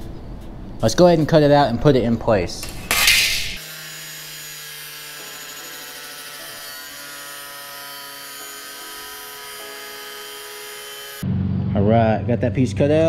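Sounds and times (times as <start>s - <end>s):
angle grinder cutting sheet metal: 2.6s - 11.2s.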